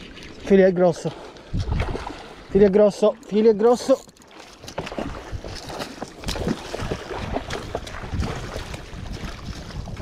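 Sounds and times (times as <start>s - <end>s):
sea water splashing against rocks: 1.0s - 2.5s, 3.9s - 10.0s
wind buffeting microphone: 1.5s - 2.7s, 4.7s - 10.0s.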